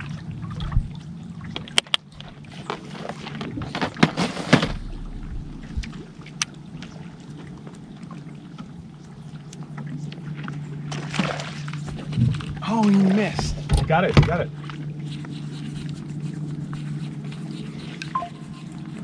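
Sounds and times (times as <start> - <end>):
steady low hum: 0.0 - 12.7
water lapping against boat hull: 0.0 - 19.0.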